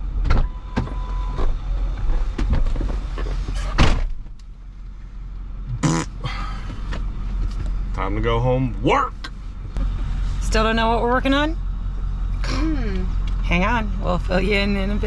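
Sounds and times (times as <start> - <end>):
vehicle engine running: 0.0 - 15.0
knocks and clunks: 0.2 - 4.4
loud thump: 3.8 - 4.4.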